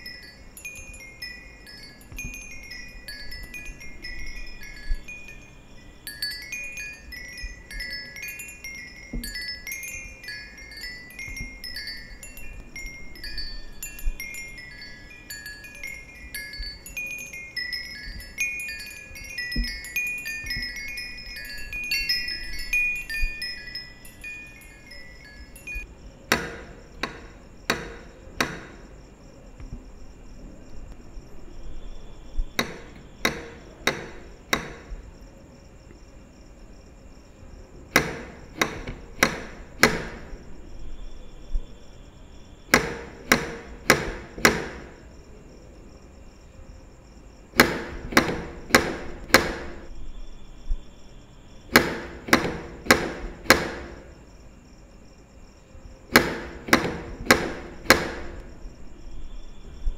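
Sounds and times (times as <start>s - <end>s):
knocking on a door: 26.3s - 28.8s, 32.6s - 35.0s, 38.0s - 40.4s, 42.8s - 45.0s, 47.6s - 49.8s, 51.7s - 54.0s, 56.1s - 58.4s.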